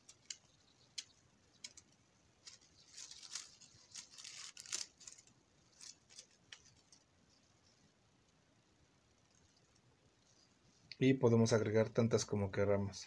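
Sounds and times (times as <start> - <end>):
small clicks: 0.0 - 7.0
paper flower petals rustling: 0.0 - 8.0.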